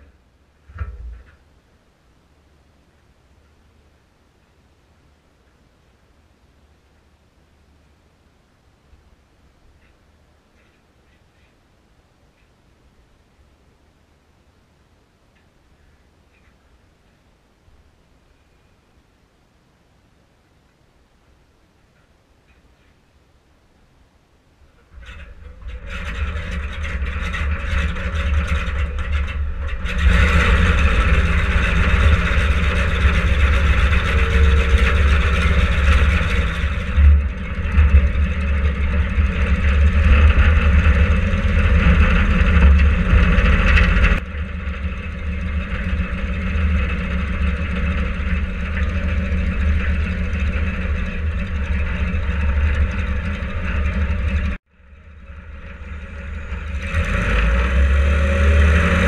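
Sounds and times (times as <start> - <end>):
radial aircraft engine running: 25.0 - 59.0.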